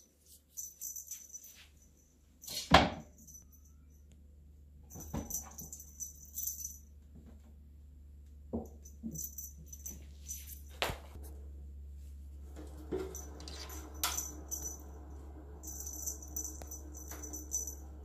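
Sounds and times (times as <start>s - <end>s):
toy jingling rattle: 5.0s - 6.8s, 15.6s - 17.8s.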